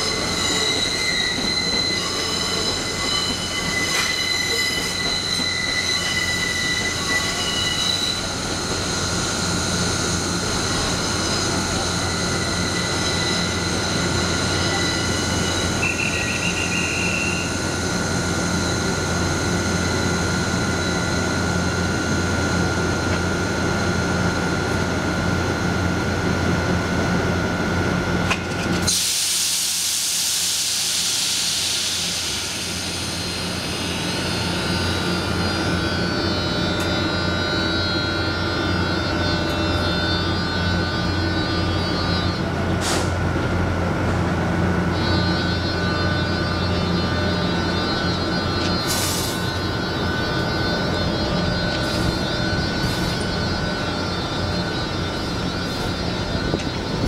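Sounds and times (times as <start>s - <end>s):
locomotive hum with whining tones: 0.0s - 57.0s
loud hiss: 28.9s - 34.5s.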